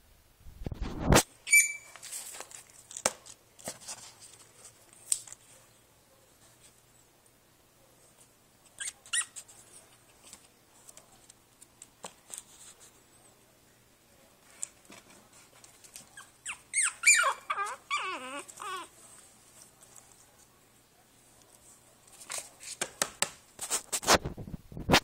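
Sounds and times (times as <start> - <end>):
puppy squeaking: 1.5 - 2.0, 8.8 - 9.4, 16.1 - 18.9
rustling and light clicks: 14.4 - 16.2, 18.4 - 20.5.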